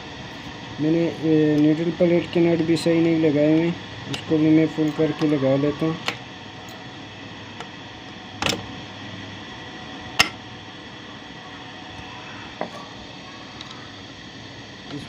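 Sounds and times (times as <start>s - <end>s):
steady background noise: 0.0s - 15.0s.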